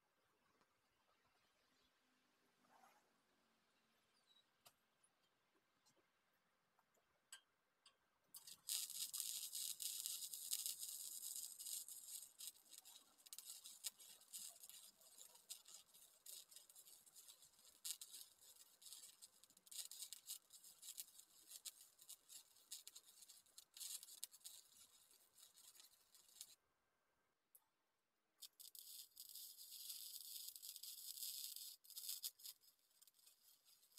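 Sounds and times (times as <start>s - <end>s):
welding arc crackling: 8.4s - 26.6s, 28.4s - 33.9s.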